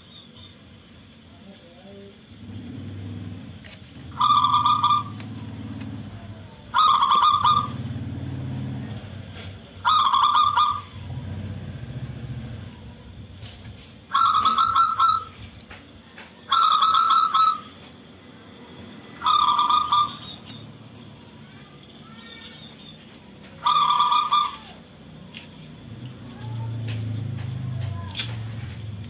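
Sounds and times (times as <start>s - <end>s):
dove cooing: 2.4s - 13.5s, 14.1s - 17.9s, 19.2s - 21.1s, 22.6s - 24.9s.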